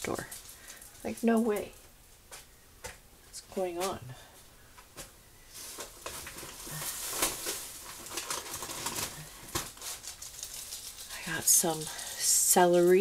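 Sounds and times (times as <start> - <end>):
packaging rustling and crinkling: 5.0 - 13.0.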